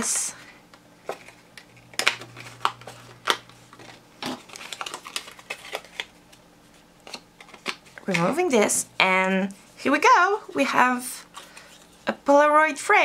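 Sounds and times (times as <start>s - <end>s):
stiff card clicking and crackling: 1.1s - 6.4s, 7.0s - 8.4s.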